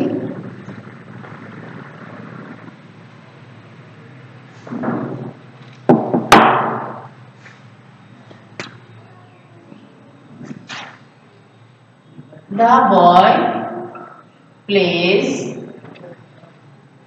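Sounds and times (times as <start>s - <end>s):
sharp knocks: 4.7s - 7.2s.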